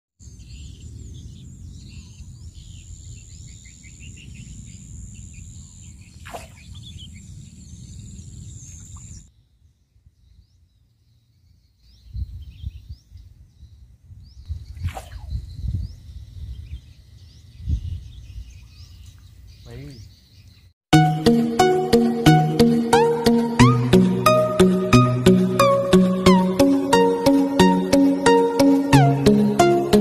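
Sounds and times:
birds chirping and singing: 0.2 - 9.3, 10.2 - 20.7
brief swish: 6.2 - 6.6, 14.8 - 15.3
low wind gusts: 12.0 - 18.7.

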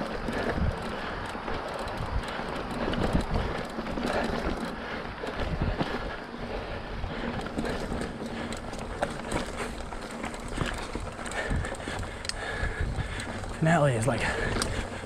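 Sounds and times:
wind on microphone: 0.0 - 4.4, 5.1 - 6.1, 10.4 - 13.6
bike knocking and rattling: 0.0 - 15.0
bike tyres crunching on dirt: 0.0 - 15.0.

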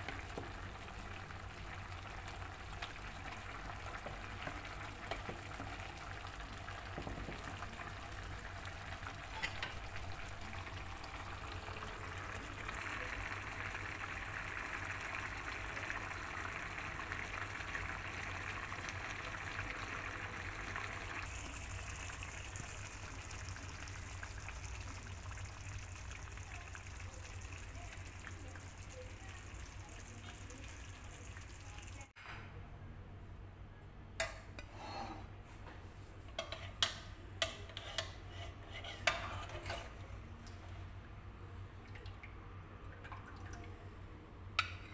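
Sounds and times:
curry bubbling in a pan: 0.0 - 32.2.

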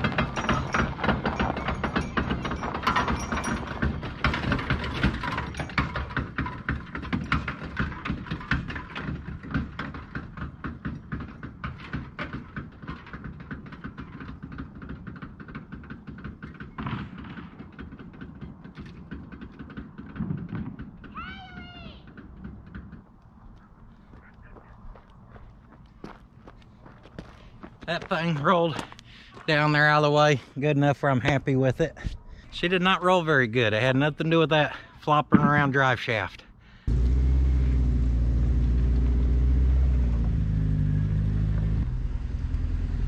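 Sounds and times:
truck rolling with knocks and clatter: 0.0 - 24.3, 25.2 - 43.0.

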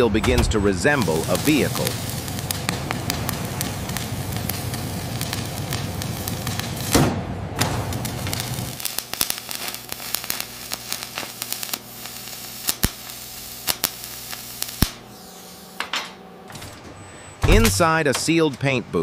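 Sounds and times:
arc welding crackling hiss: 0.8 - 7.0, 7.6 - 16.0
sharp welding pops: 1.0 - 16.2.

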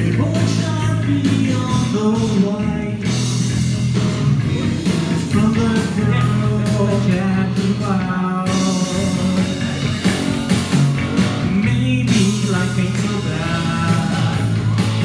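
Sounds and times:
bass: 0.0 - 15.0
electric guitars: 0.0 - 15.0
keyboard: 0.0 - 15.0
lead vocals singing: 4.4 - 10.1, 11.4 - 15.0.

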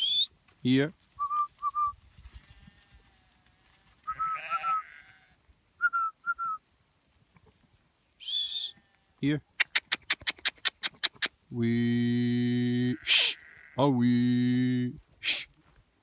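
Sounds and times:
shepherd whistling commands: 0.0 - 0.3, 4.1 - 4.9, 8.2 - 8.8
sheep bleating: 2.5 - 5.4, 12.0 - 14.6.

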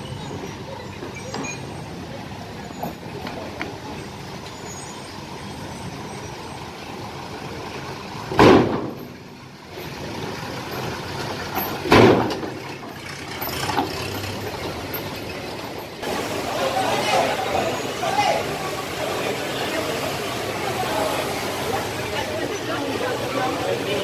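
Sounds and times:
diesel truck engine running: 0.0 - 24.0.

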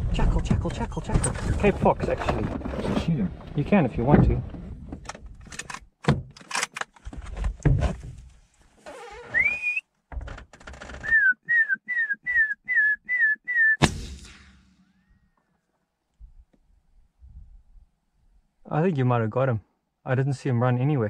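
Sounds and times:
person whistling: 9.3 - 9.8, 11.0 - 13.8
rifle shot: 13.8 - 15.0.

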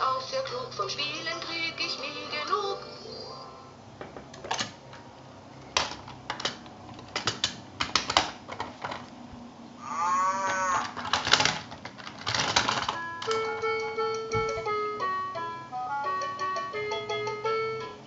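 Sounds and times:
plastic toy clacking: 5.7 - 9.0, 10.8 - 14.3
electronic toy cow moo: 9.8 - 10.9.

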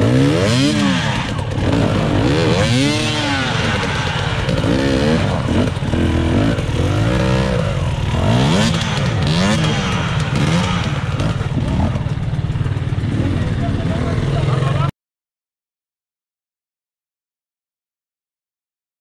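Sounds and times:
two-stroke motorcycle engine revving: 0.0 - 14.9.

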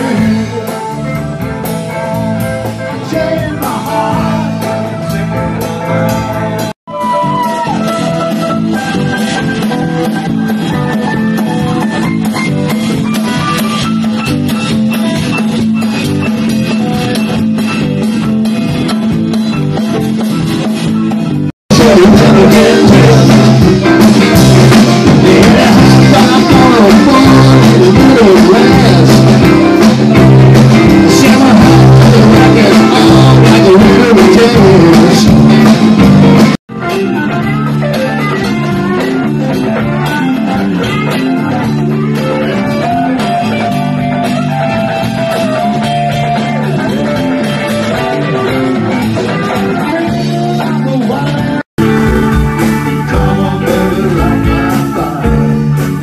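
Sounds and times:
man singing into a microphone: 0.0 - 1.0, 2.8 - 5.2, 21.7 - 23.7, 24.9 - 29.8, 30.7 - 35.6, 47.9 - 51.6, 52.8 - 55.7
drums: 0.0 - 56.0
electric guitar: 0.0 - 56.0.

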